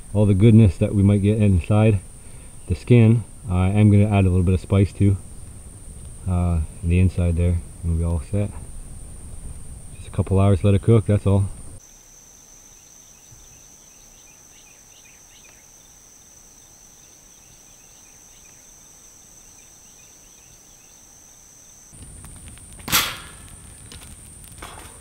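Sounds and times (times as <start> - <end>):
campfire burning: 0.0 - 11.9, 21.2 - 25.0
faint chirps: 0.1 - 10.2, 10.8 - 22.0
insect high-pitched trill: 0.2 - 24.9
sharp knock: 22.8 - 23.4.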